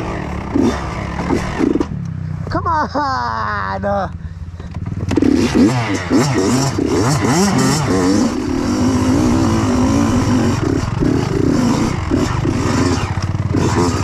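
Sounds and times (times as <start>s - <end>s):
dirt bike engine revving: 0.0s - 3.0s, 4.4s - 14.0s.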